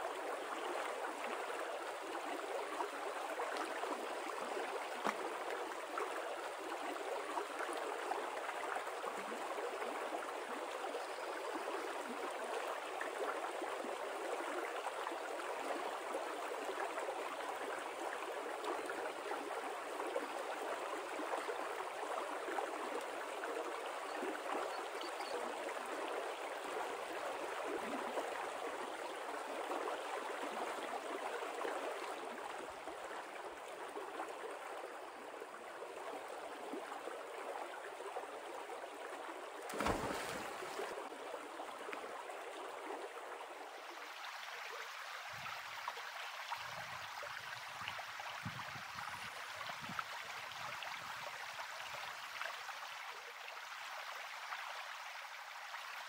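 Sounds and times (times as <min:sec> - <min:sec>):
creek rippling over stones: 0:00.0 - 0:56.0.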